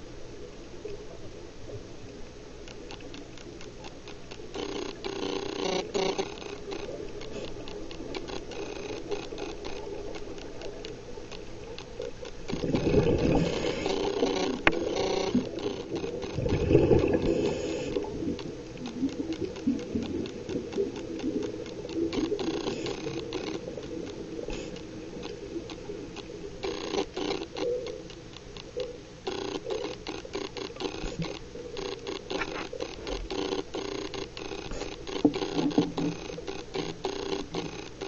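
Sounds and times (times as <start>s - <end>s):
regulator bubbles rushing: 12.5s - 13.5s, 16.2s - 18.4s.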